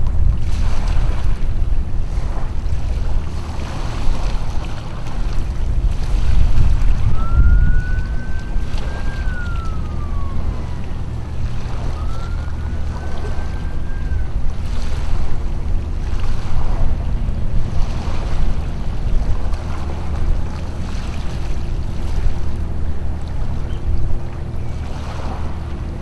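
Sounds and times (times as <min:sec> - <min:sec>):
wind noise on microphone: 0:00.0 - 0:26.0
long thin whistles: 0:07.0 - 0:15.0.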